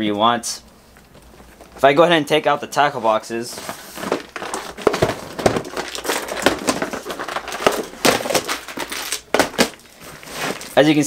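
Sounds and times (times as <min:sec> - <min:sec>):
bag rustling: 0:03.4 - 0:10.9
plastic boxes clacking and knocking: 0:03.6 - 0:10.8.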